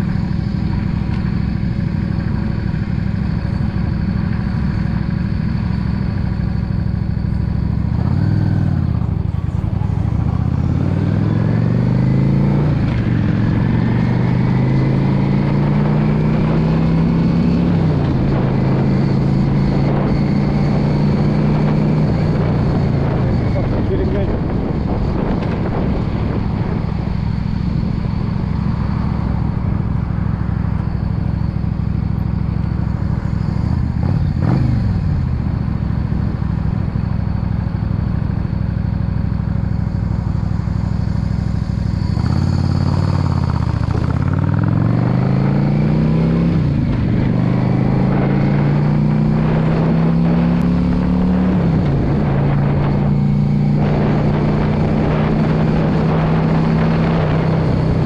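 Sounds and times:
motorcycle engine running: 0.0s - 58.0s
wind noise: 7.6s - 30.6s, 41.9s - 58.0s.

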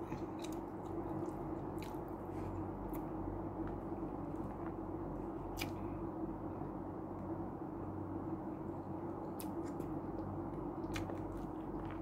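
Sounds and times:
chewing and mouth noises: 0.0s - 3.1s, 9.2s - 12.0s
steady low hum: 0.0s - 12.0s.

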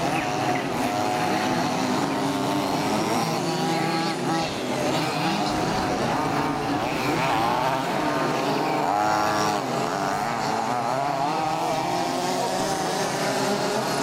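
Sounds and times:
small two-stroke engines buzzing: 0.0s - 14.0s.

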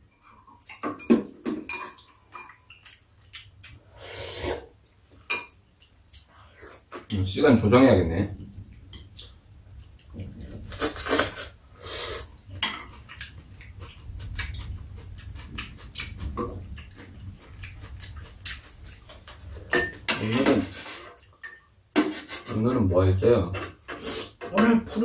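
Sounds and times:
utensils clinking on ceramic bowls: 0.1s - 2.7s, 5.2s - 5.6s, 12.6s - 13.2s, 19.3s - 21.7s.

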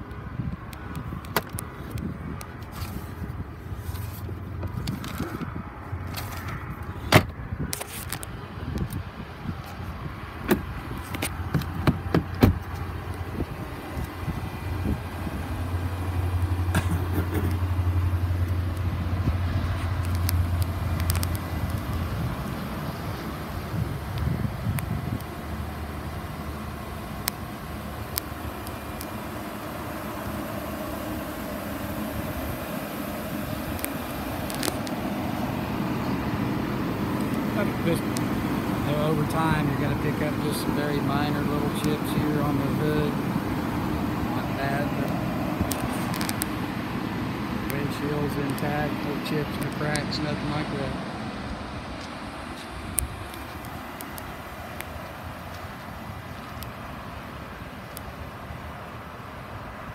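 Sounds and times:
glove box and door clicks: 6.2s - 7.4s, 10.4s - 13.2s
steady low hum: 8.4s - 59.3s.

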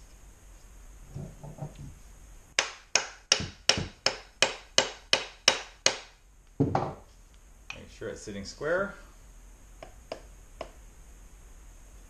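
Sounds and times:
mallet striking wooden handle: 2.6s - 7.0s.

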